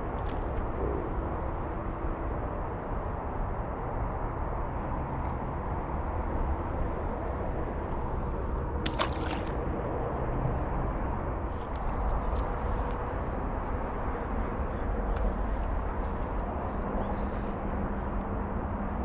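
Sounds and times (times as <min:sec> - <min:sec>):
fish splashing into water: 0:08.8 - 0:09.9.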